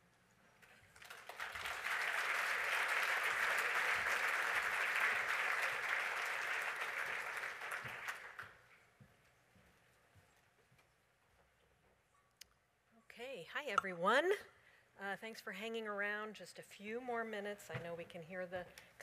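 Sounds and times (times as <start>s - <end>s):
audience applauding: 0.9s - 8.6s.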